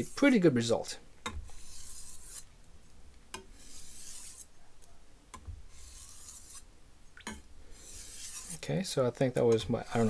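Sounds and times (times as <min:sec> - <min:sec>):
knife scraping on whetstone: 0:01.3 - 0:02.5, 0:03.4 - 0:04.5, 0:05.7 - 0:06.7, 0:07.7 - 0:08.6, 0:09.5 - 0:10.0.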